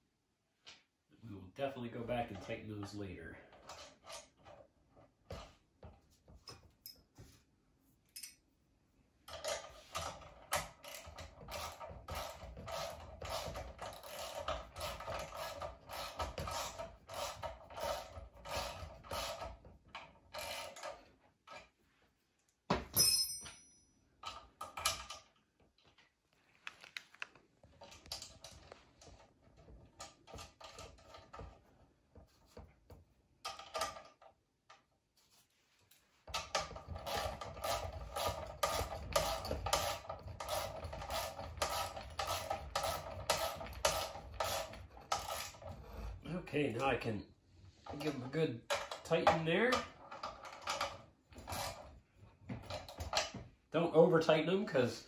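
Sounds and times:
sharp metallic clink: 22.9 - 24.0.

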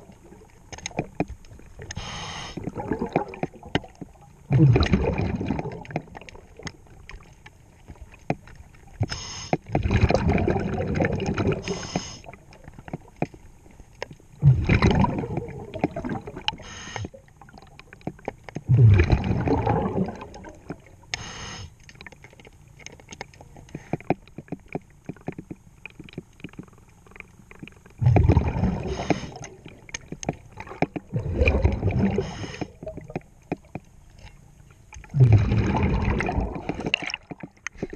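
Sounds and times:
exhaled bubbles underwater: 0.0 - 9.0, 9.6 - 13.2, 14.4 - 21.1, 25.2 - 34.3, 34.9 - 37.9
regulator hiss: 2.0 - 2.6, 9.1 - 9.6, 11.6 - 12.3, 16.6 - 17.2, 21.1 - 21.8.

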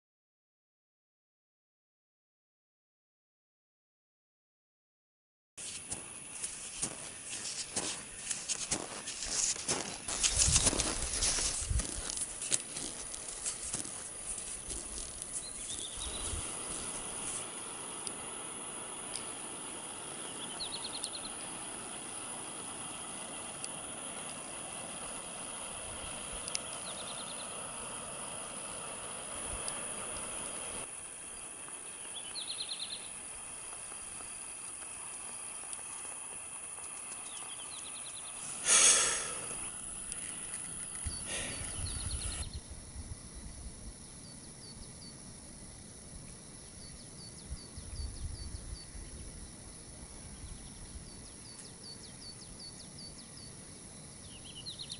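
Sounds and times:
boots and skis crunching in snow: 5.6 - 17.6
skis hissing over snow: 5.6 - 42.5.

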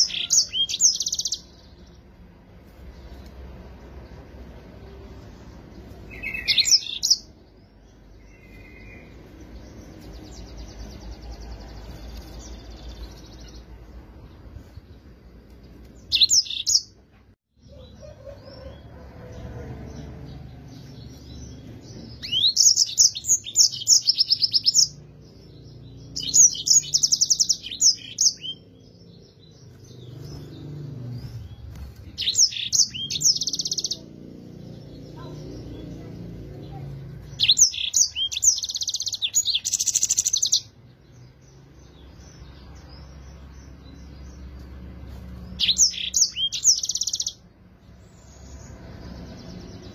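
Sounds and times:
canary singing: 0.0 - 17.0, 17.6 - 49.9.

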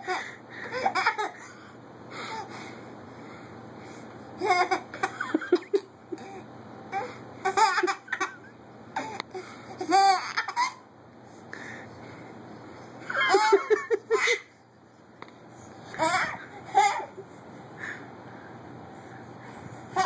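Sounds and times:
baby laughing: 0.1 - 1.5, 4.4 - 6.3, 7.4 - 9.2, 9.8 - 10.8, 13.0 - 14.5, 15.9 - 17.2.

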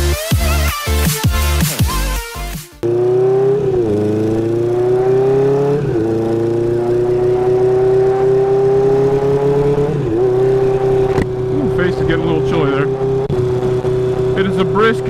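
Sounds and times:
electronic music: 0.0 - 2.8
motorcycle engine revving through gears: 2.8 - 15.0.

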